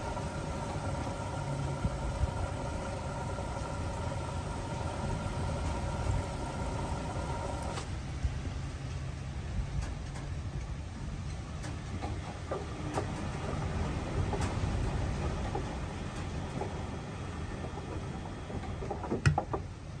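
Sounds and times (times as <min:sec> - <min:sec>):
washing machine drum rumbling: 0:00.0 - 0:07.8, 0:11.2 - 0:20.0
hoses knocking in drum: 0:17.5 - 0:19.8.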